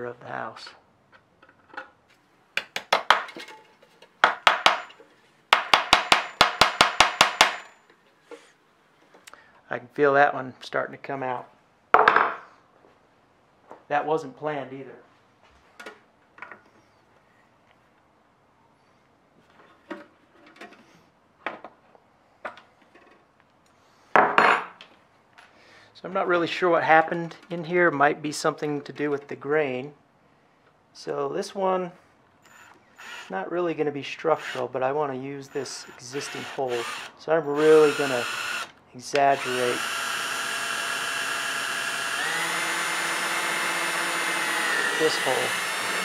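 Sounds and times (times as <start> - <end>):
hammer striking nail on metal roof: 4.2 - 5.0, 5.6 - 7.7.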